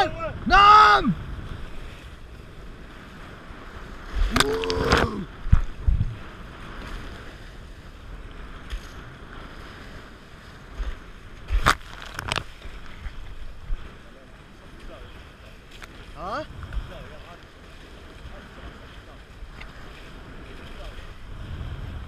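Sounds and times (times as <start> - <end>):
person calling out: 0.0 - 1.2, 4.3 - 5.3
water rushing along boat hull: 0.0 - 22.0
wind on microphone: 0.0 - 22.0.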